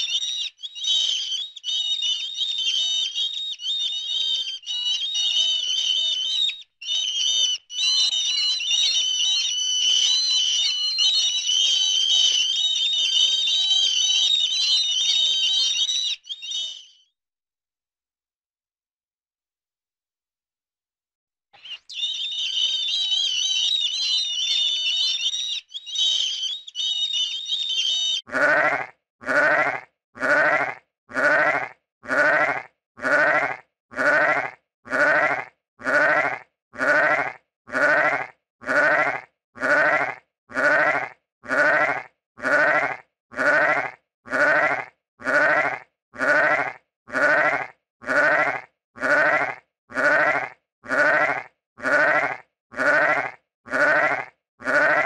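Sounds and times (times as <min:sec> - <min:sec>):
high-pitched chirping squeaks: 0:00.0 - 0:17.0, 0:21.6 - 0:28.2
sheep bleating: 0:28.3 - 0:55.0.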